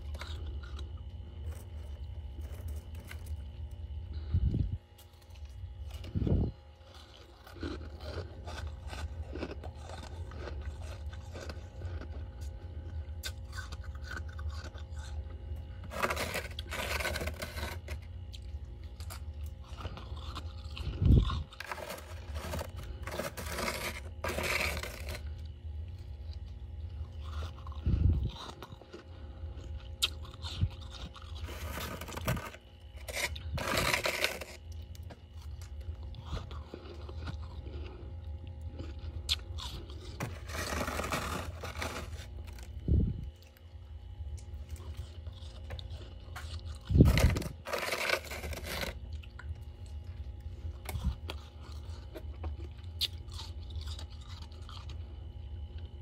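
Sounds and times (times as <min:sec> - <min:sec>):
steady low hum: 0:00.0 - 0:56.0
fingernails scraping frost: 0:15.8 - 0:18.0, 0:21.1 - 0:25.3, 0:31.4 - 0:34.6, 0:40.2 - 0:42.7, 0:46.9 - 0:49.0.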